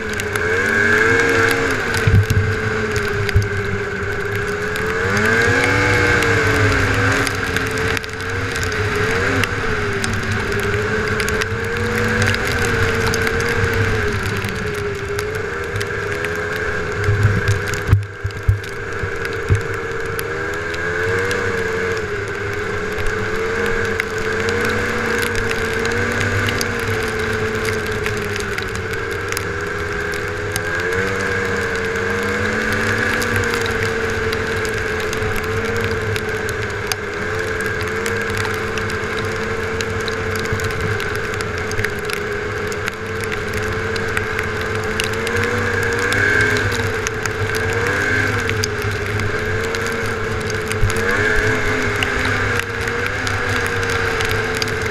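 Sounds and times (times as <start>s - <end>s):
snowmobile engine running: 0.0s - 54.9s.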